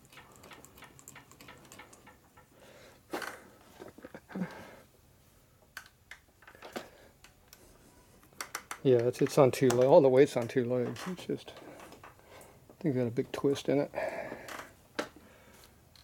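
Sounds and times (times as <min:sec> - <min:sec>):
light clicks and knocks: 0:08.3 - 0:12.2.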